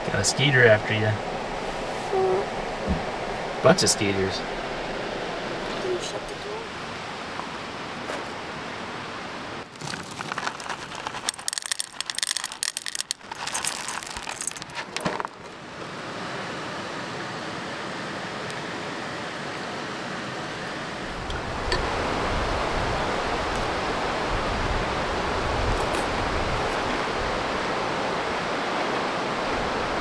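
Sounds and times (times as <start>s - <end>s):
river rushing: 0.0s - 30.0s
cereal rattling into metal bowl: 9.7s - 15.3s.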